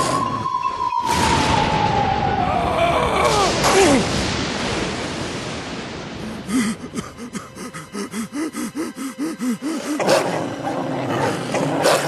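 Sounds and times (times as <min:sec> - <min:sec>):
descending cartoon whistles: 0:00.0 - 0:02.5
crash-like burst: 0:01.0 - 0:02.5, 0:03.2 - 0:07.2
quick rhythmic breathing: 0:06.5 - 0:10.2.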